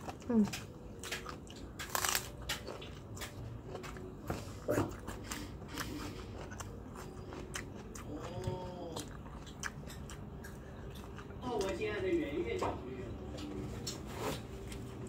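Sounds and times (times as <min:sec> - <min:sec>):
person chewing crunchy food: 0:00.0 - 0:11.8.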